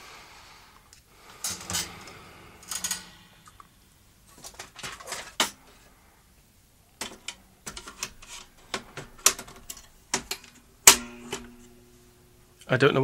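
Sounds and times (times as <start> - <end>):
clicks and knocks handling parts: 0.9 - 3.7, 4.3 - 5.8, 7.0 - 11.8.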